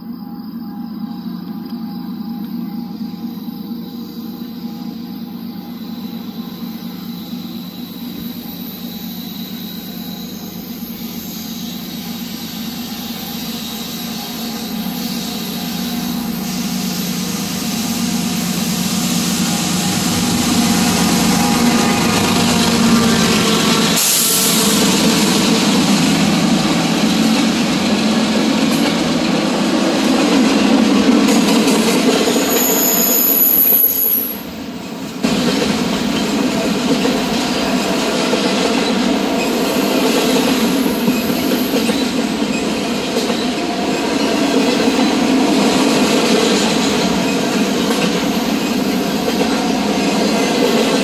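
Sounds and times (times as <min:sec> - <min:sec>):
diesel locomotives passing: 0:00.0 - 0:51.0
freight cars rolling rumble: 0:13.4 - 0:32.7.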